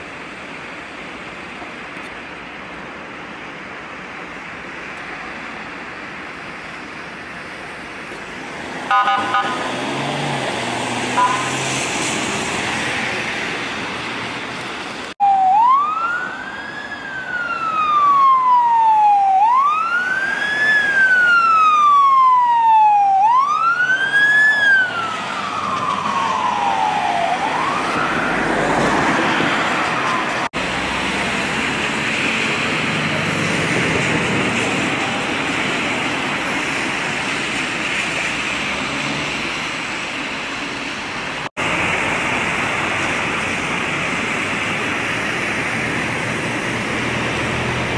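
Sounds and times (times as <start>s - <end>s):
road traffic noise: 0.0s - 47.9s
emergency vehicle siren wailing: 8.9s - 13.3s, 15.1s - 37.2s.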